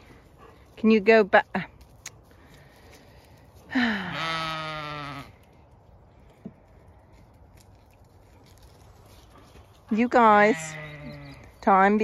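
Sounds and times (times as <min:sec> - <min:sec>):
sheep bleating: 0:03.9 - 0:05.3, 0:10.4 - 0:11.4.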